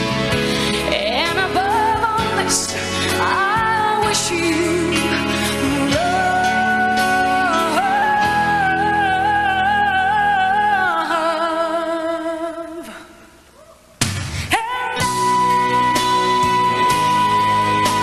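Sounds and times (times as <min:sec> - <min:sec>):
live band playing: 0:00.0 - 0:09.8, 0:14.3 - 0:18.0.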